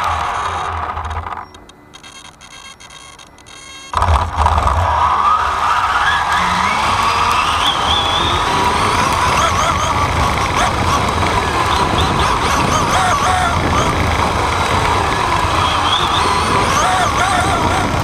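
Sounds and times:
buggy drivetrain rumble: 0.0s - 18.0s
motor whine: 0.0s - 18.0s
wind on microphone: 6.6s - 18.0s.

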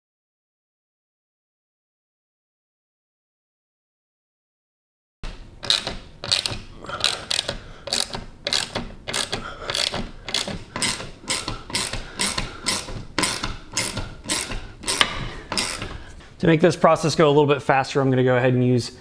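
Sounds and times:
ratchet wrench clicking: 5.6s - 16.0s.

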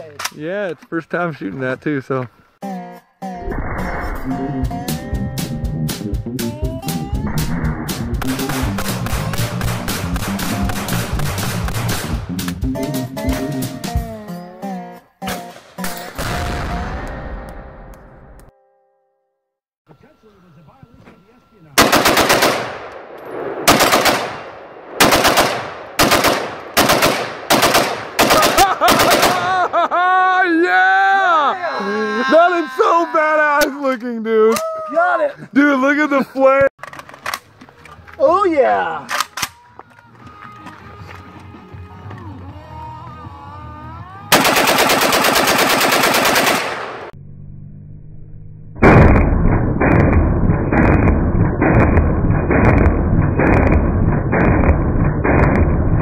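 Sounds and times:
rapid bursts of gunshots: 8.2s - 12.2s, 21.8s - 22.8s, 23.6s - 29.6s, 44.3s - 47.1s, 49.8s - 56.0s
rifle rapid fire: 8.2s - 12.2s, 21.8s - 29.6s, 44.3s - 47.1s, 48.8s - 56.0s
gunshot echo: 21.8s - 29.5s, 48.8s - 56.0s.

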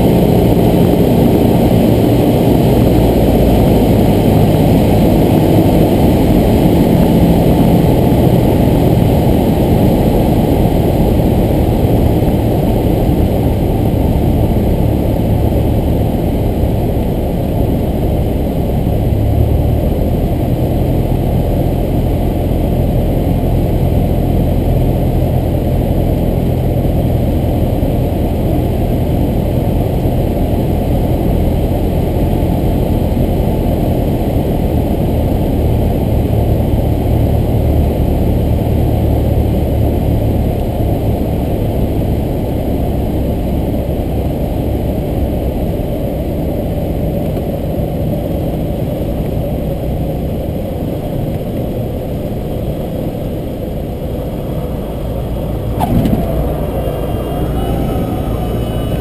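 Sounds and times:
airplane engine droning in cabin: 0.0s - 59.0s.

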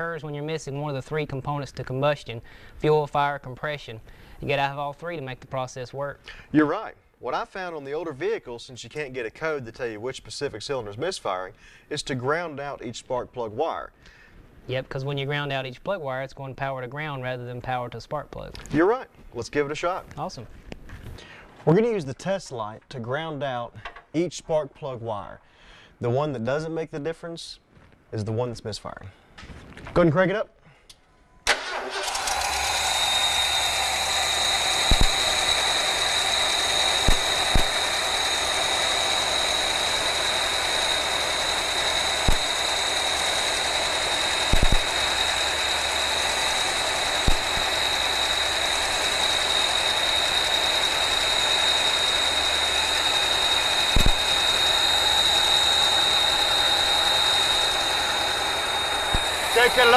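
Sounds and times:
high-pitched whine: 31.7s - 59.9s
truck engine idling roughly: 31.7s - 59.9s
sharp click: 34.8s - 35.3s, 37.0s - 37.8s, 42.2s - 42.5s, 44.5s - 44.9s, 47.2s - 47.6s, 53.9s - 54.3s.

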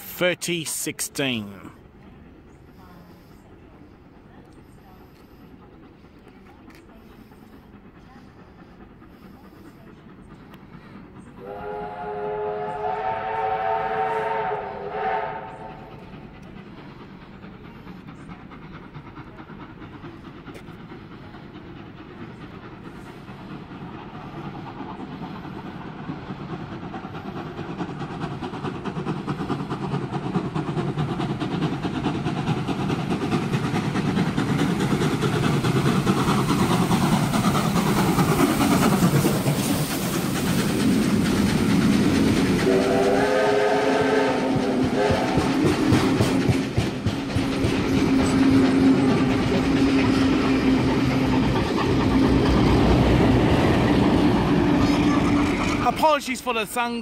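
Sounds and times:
train wheels rumbling on rail: 0.0s - 57.0s
locomotive warning horn: 11.4s - 15.8s, 42.7s - 45.2s.

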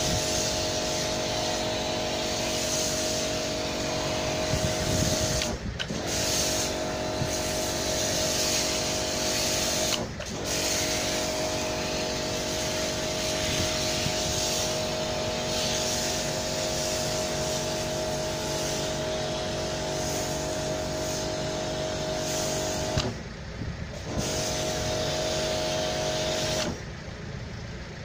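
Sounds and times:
foam lance spraying hiss: 0.0s - 23.2s, 24.0s - 26.9s
pressure washer motor humming: 0.0s - 27.9s.

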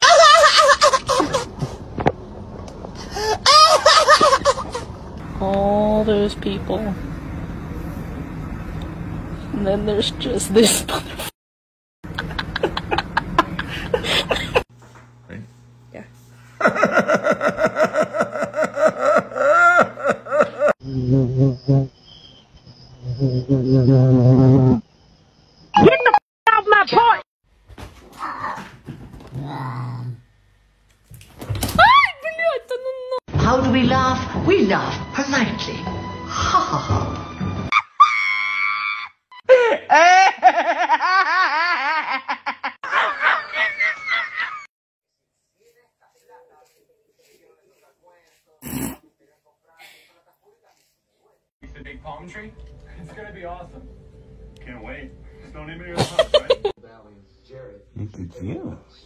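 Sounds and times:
person laughing: 0.0s - 1.8s, 3.1s - 4.9s, 12.1s - 14.7s, 16.6s - 20.8s, 39.4s - 44.7s, 56.0s - 56.8s.

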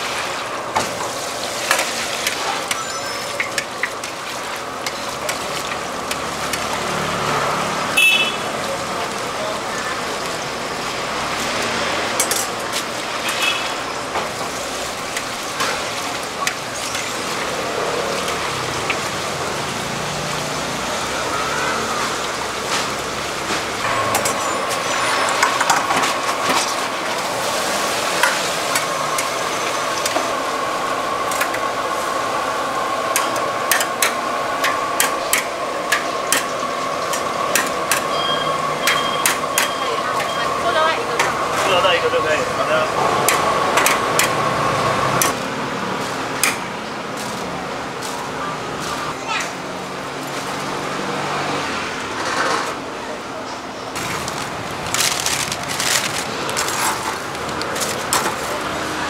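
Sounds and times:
deep-frying sizzle: 0.0s - 40.7s.

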